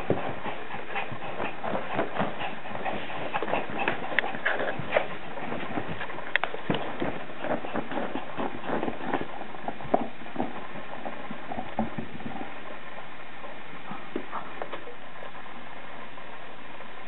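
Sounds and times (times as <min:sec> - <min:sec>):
dog scrabbling at cloth: 0:00.0 - 0:12.5
rustles and light thumps: 0:00.0 - 0:15.4.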